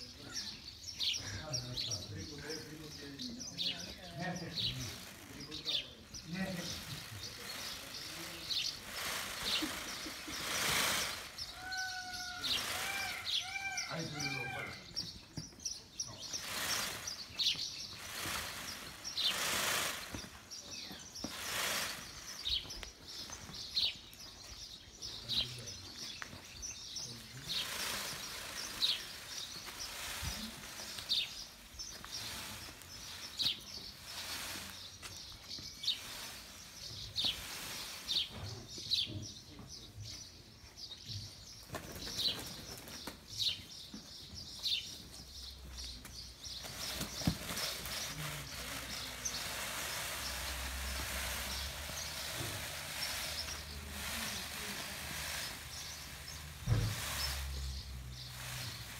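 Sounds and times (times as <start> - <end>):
small birds chirping: 0.0 - 58.9
peacock feathers rustling: 3.6 - 24.4, 27.1 - 38.5, 45.6 - 58.9.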